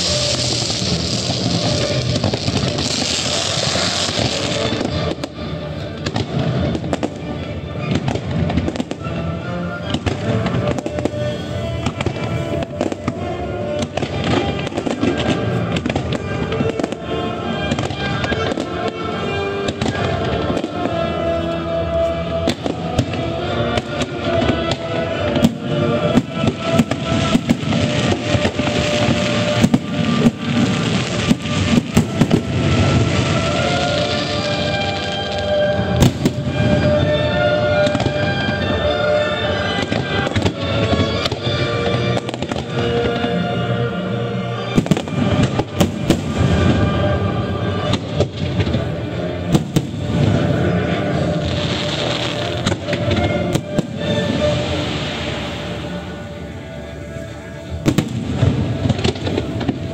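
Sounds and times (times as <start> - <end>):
fireworks bangs and crackles: 0.0 - 59.9
music playing: 0.0 - 59.9.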